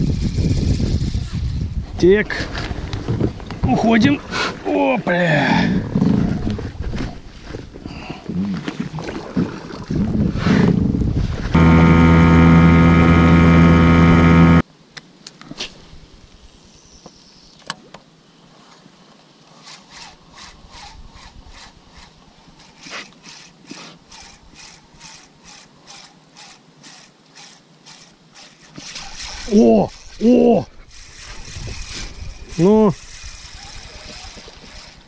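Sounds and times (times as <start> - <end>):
loud low hum: 11.5 - 14.6
fishing reel ticking: 19.6 - 35.0.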